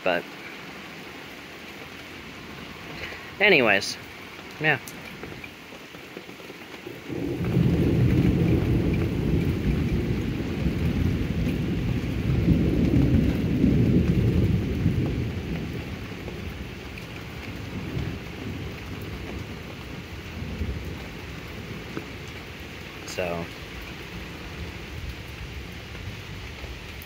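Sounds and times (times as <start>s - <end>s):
rain falling on pavement: 0.0s - 27.0s
thunder rumbling: 6.9s - 27.0s.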